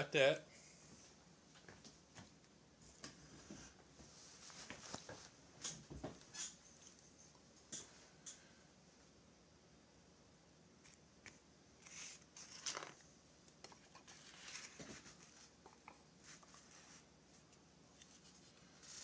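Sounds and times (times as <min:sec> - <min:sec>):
light rustling handling noises: 0:01.6 - 0:08.4.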